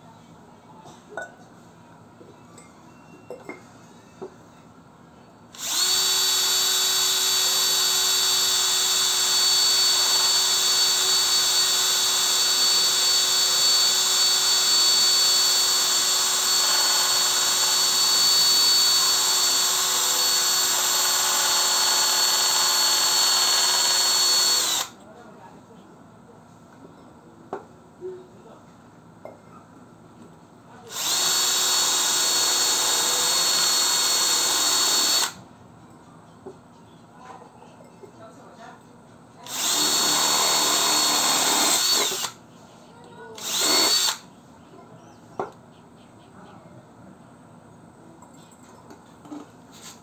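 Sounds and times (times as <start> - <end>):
drill boring through clay pot: 5.6 - 25.0, 30.9 - 35.4, 39.4 - 42.4, 43.4 - 44.2.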